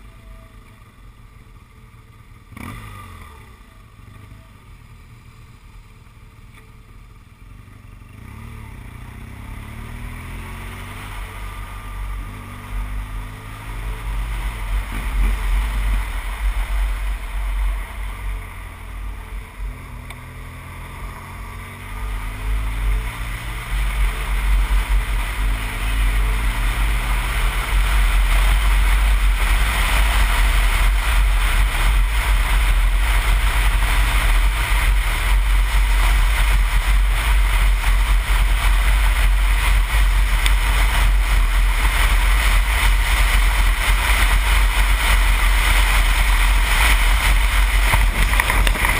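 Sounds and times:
motorcycle engine accelerating: 0:00.0 - 0:48.9
wind rumble on microphone: 0:23.9 - 0:48.9.

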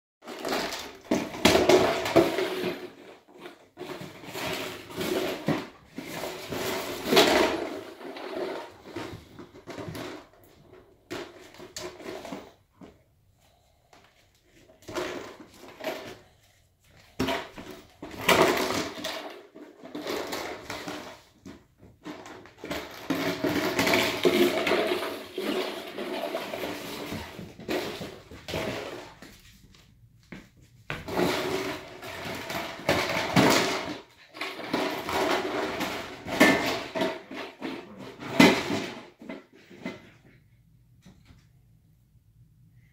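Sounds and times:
plastic container clattering on floor: 0:17.2 - 0:29.4, 0:30.9 - 0:40.4.

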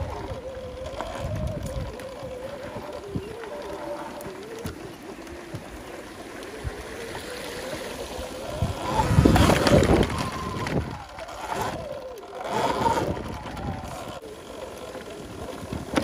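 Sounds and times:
wind noise: 0:00.0 - 0:06.0, 0:06.6 - 0:14.2
electric motor whine: 0:00.0 - 0:16.0.

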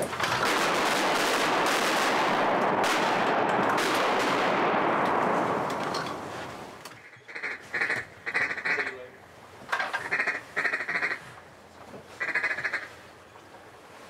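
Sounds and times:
loud dense rush of noise: 0:00.0 - 0:06.9
duck quacks: 0:07.0 - 0:09.0, 0:10.0 - 0:11.3, 0:12.2 - 0:12.9.

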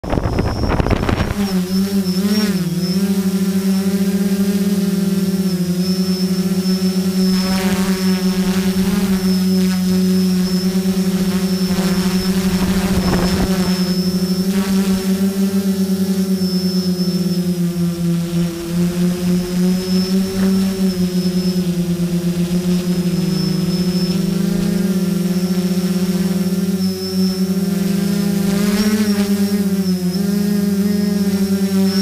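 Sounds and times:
drone motors humming: 0:00.0 - 0:32.0.

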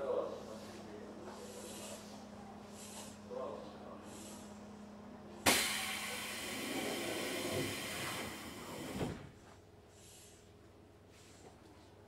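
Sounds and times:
compressed air hissing: 0:04.0 - 0:04.5.

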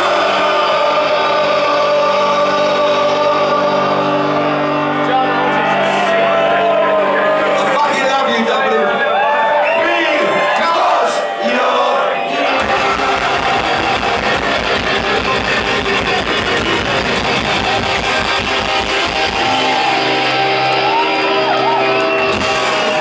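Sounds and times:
punk rock band playing: 0:00.0 - 0:08.3, 0:10.4 - 0:23.0.

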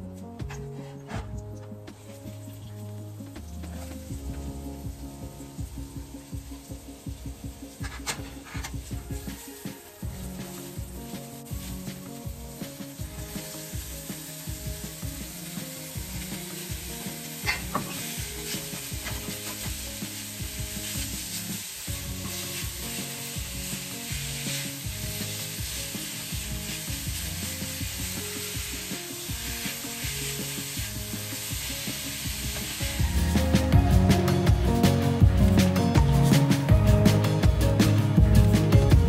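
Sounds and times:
meat frying with sizzle: 0:01.3 - 0:39.0
spatula scraping pan: 0:07.8 - 0:09.0, 0:17.4 - 0:19.9.

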